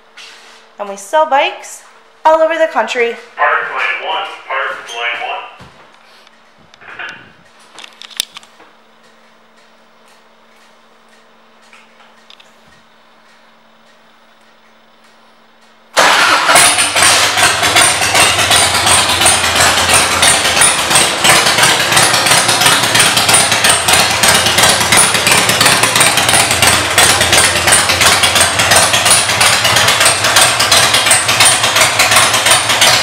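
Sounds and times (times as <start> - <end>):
motorcycle engine idling: 16.0 - 33.0.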